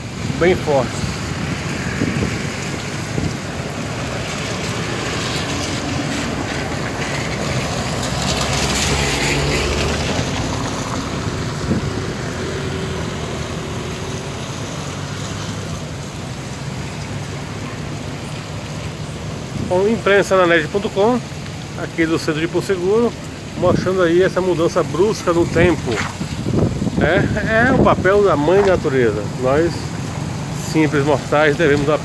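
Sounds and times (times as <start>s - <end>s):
wind on microphone: 0.0s - 8.7s, 9.7s - 13.6s, 25.4s - 30.6s
car passing on wet road: 0.0s - 32.0s
traffic noise: 0.0s - 32.0s.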